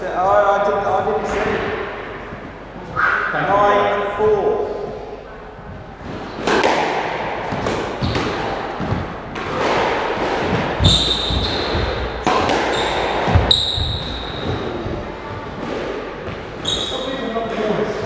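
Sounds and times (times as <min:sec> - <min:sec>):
squash ball knocking: 0:06.4 - 0:16.6
shoes squeaking on wooden floor: 0:10.8 - 0:15.4, 0:16.3 - 0:17.2.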